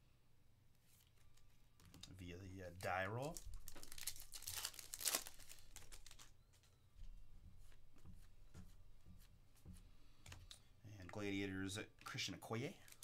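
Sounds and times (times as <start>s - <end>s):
foil wrapper crinkling: 2.7s - 6.3s, 12.7s - 13.0s.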